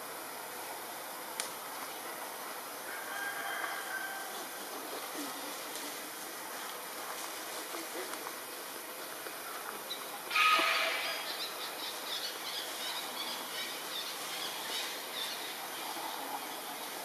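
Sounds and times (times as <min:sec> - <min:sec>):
forest background noise: 0:00.0 - 0:17.0
loud animal call: 0:10.3 - 0:11.5.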